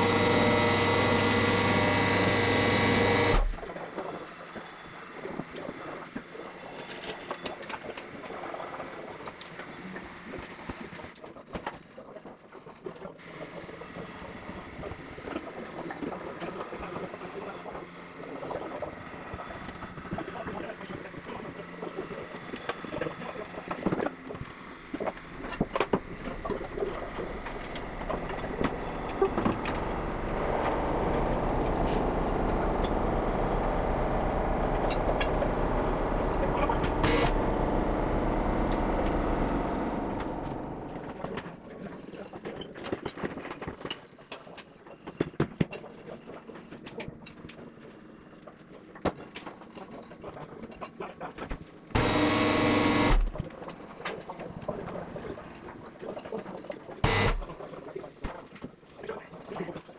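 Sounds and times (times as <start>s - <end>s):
steady machine noise: 0.0s - 7.1s, 13.2s - 41.9s, 52.0s - 53.5s, 57.0s - 57.6s.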